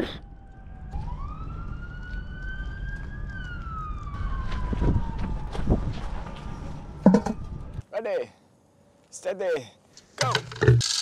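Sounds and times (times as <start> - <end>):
emergency siren wailing: 0.0 - 7.8.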